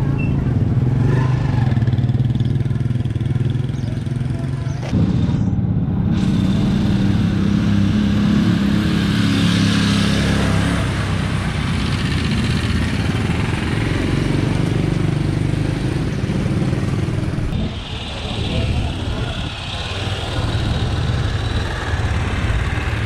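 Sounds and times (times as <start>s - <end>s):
road noise: 0.0s - 23.0s
vehicle engine running: 10.4s - 23.0s.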